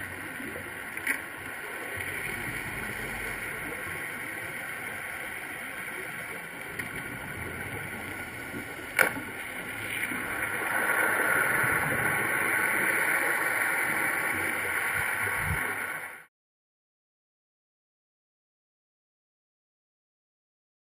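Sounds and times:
steady underwater hiss: 0:00.0 - 0:16.3
rushing noise: 0:09.5 - 0:16.3.

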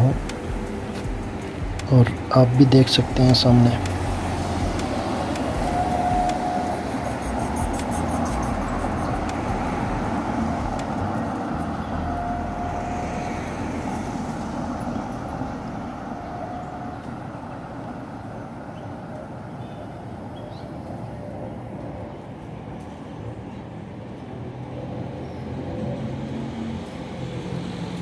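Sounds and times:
cars driving: 0:00.0 - 0:28.0.

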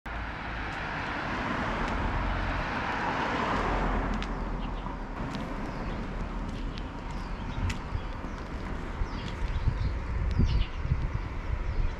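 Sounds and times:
car passing by: 0:00.1 - 0:07.6.

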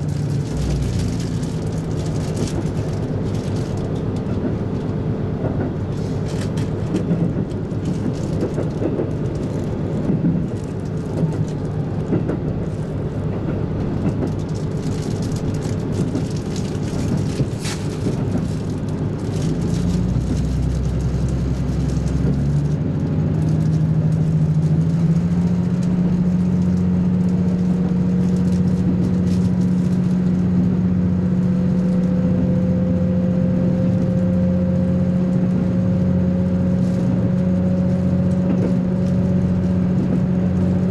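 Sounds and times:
rising engine hum: 0:00.0 - 0:40.9
train rumbling drone: 0:00.0 - 0:40.9.

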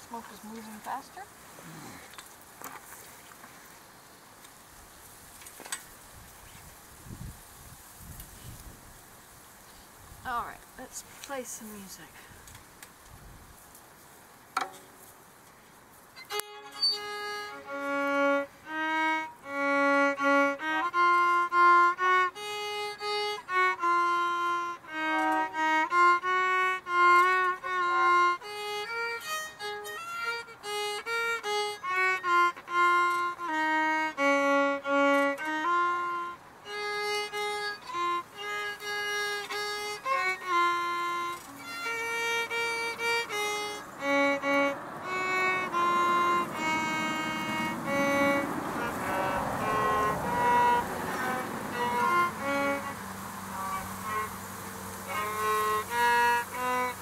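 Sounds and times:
solo violin melody: 0:16.2 - 0:57.0.

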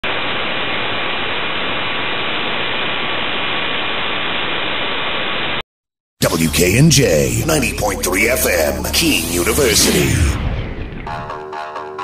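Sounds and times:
radio static hiss: 0:00.0 - 0:05.6, 0:08.8 - 0:10.4.

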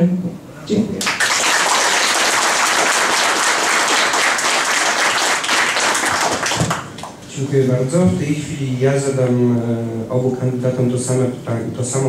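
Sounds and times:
audience clapping: 0:01.0 - 0:07.2.

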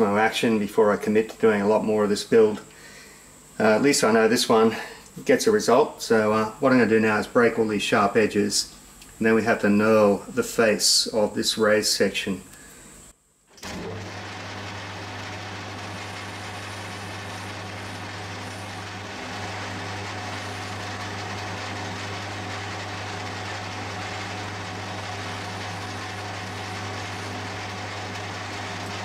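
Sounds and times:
metal lathe running: 0:13.6 - 0:29.0.

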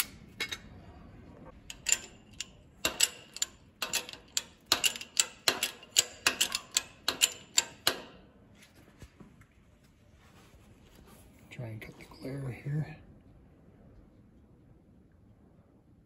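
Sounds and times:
sharp metallic clicks: 0:01.6 - 0:08.2.

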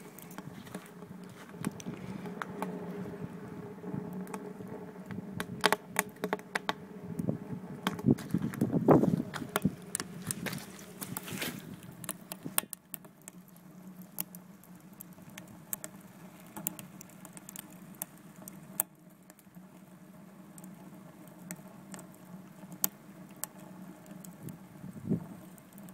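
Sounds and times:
wood fire crackling: 0:00.0 - 0:25.9.

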